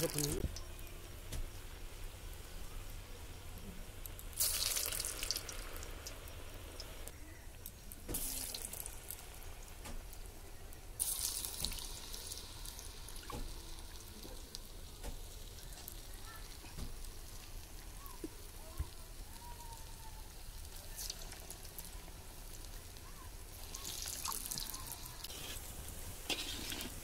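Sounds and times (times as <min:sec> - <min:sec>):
food deep-frying in hot oil: 0:00.0 - 0:27.0.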